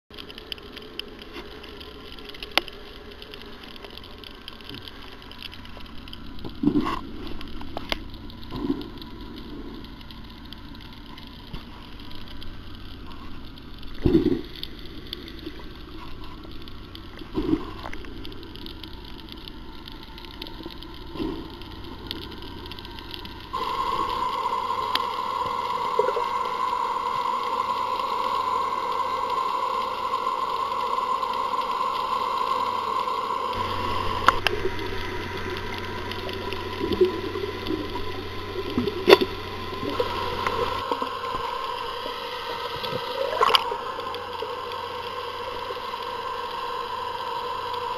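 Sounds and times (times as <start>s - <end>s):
droning hum: 0.1s - 47.9s
underwater hiss: 13.0s - 47.9s.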